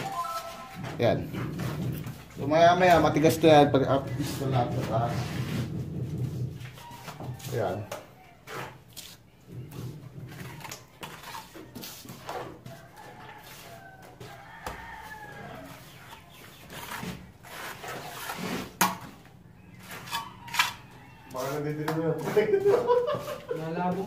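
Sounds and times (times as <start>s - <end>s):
rooster crowing: 6.8s - 8.6s, 12.6s - 15.9s, 20.2s - 21.7s
trowel scraping and tapping mortar: 9.8s - 12.8s, 19.8s - 24.0s.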